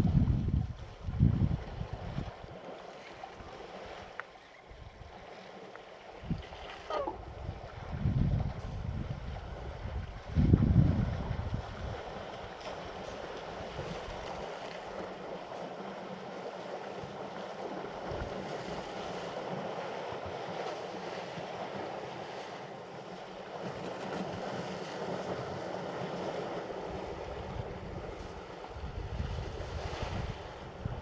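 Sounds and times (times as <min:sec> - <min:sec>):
wind gusts buffeting microphone: 0:00.0 - 0:02.5, 0:06.2 - 0:14.5, 0:23.7 - 0:31.0
wind noise: 0:00.0 - 0:02.5, 0:06.2 - 0:14.5, 0:23.7 - 0:31.0.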